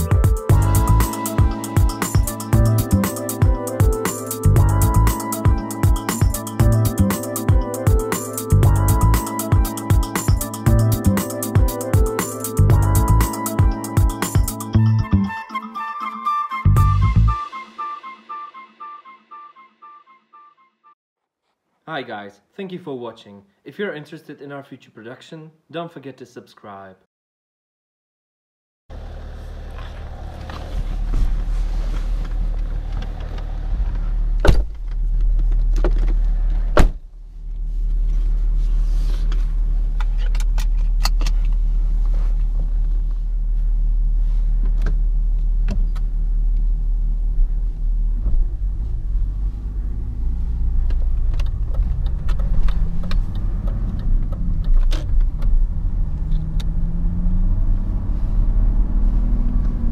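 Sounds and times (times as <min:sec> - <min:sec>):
car door shutting: 0:34.4 - 0:35.0, 0:35.6 - 0:37.0.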